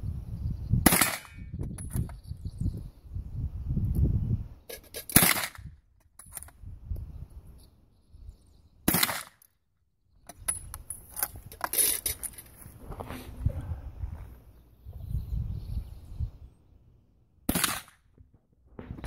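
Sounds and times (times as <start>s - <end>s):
rifle shots: 0.9s - 1.4s, 5.2s - 5.6s, 8.9s - 9.4s, 17.5s - 18.0s
metallic clicks and rattling: 10.3s - 12.6s.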